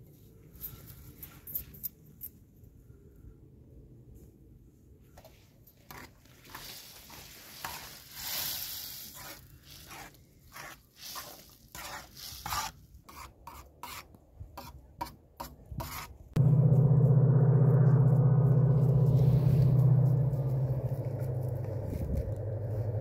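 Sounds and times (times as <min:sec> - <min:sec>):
utensil scraping in a pot: 0:05.9 - 0:14.7
loud low drone: 0:16.4 - 0:23.0.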